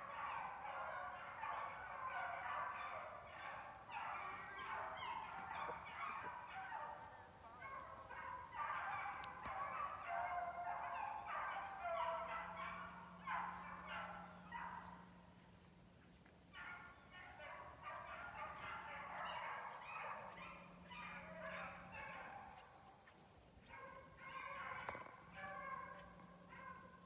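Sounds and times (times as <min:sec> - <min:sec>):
hounds baying in chorus: 0:00.0 - 0:27.0.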